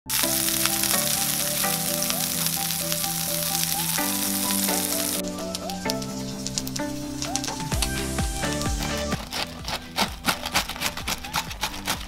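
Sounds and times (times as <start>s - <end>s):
background music: 0.0s - 12.0s
meat patty sizzling in a pan: 0.1s - 5.2s.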